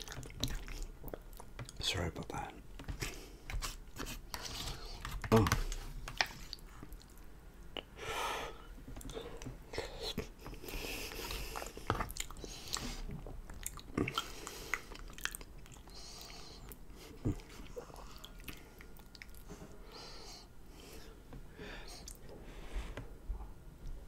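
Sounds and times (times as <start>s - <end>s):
chewing food: 0.0s - 1.8s, 2.8s - 7.9s, 9.0s - 19.6s.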